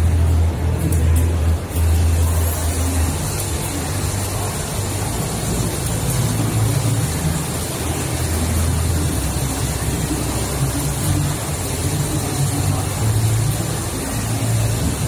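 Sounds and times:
exhibition hall background rumble: 0:00.0 - 0:15.0.

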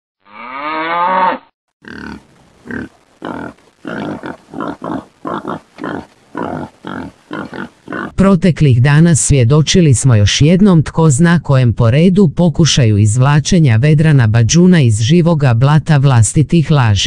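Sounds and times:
pig squealing: 0:00.3 - 0:08.1
pig grunting: 0:00.3 - 0:08.2.

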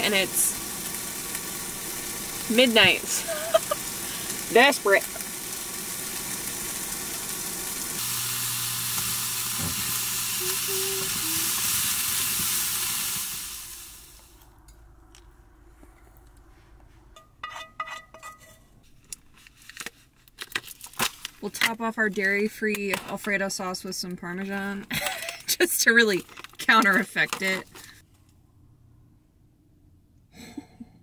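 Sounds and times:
chicken sizzling in a pan: 0:00.0 - 0:14.4.

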